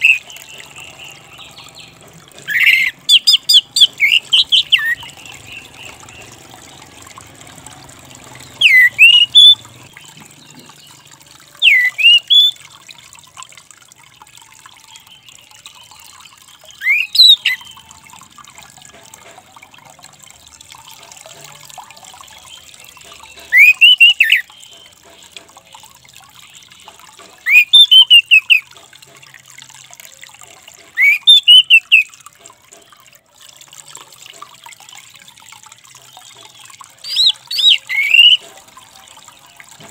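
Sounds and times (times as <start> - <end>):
thrush upward-sweeping calls: 0.0 - 6.4, 8.4 - 9.6, 11.6 - 12.6, 16.8 - 17.7, 23.5 - 24.5, 27.5 - 28.6, 31.0 - 32.1, 37.0 - 38.5.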